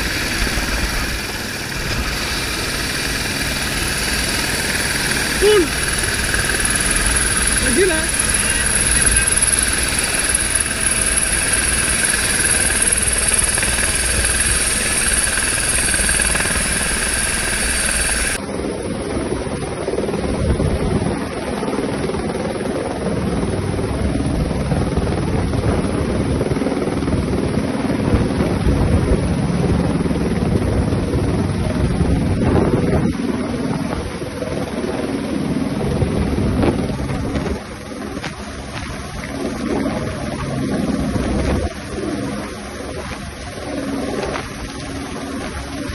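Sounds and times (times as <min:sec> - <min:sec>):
helicopter rotor noise: 0:00.0 - 0:45.9
helicopter turbine whine: 0:00.0 - 0:45.9
wind on microphone: 0:19.0 - 0:21.5, 0:23.8 - 0:45.9.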